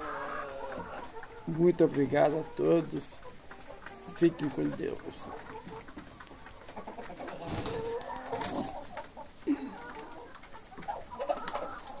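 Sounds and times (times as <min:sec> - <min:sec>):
hens clucking: 0:00.0 - 0:12.0.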